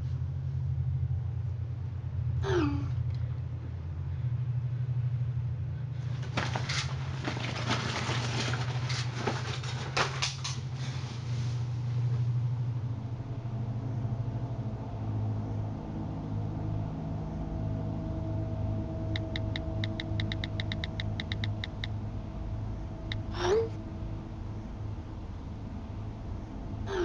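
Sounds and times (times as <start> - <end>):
low steady drone: 0.0 - 6.2, 10.8 - 27.0
bedsheets rustling: 6.0 - 12.4
held tone: 19.2 - 21.9
phone keyboard tapping clicks: 19.2 - 21.9.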